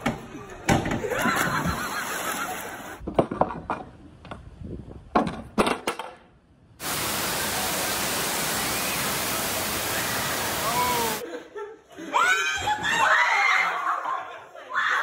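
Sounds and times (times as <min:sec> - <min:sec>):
hiss of falling water: 0:06.8 - 0:11.2
water splashing in a pool: 0:06.8 - 0:11.2.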